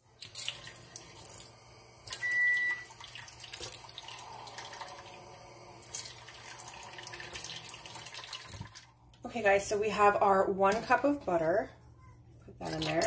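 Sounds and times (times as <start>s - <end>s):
kitchen tap running: 0.0s - 9.1s, 12.6s - 13.0s
electronic beep: 2.2s - 2.8s.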